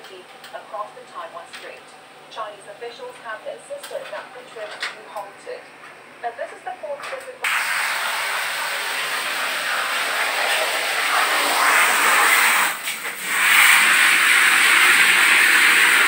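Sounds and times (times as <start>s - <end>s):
water spraying on shower floor: 7.4s - 16.0s.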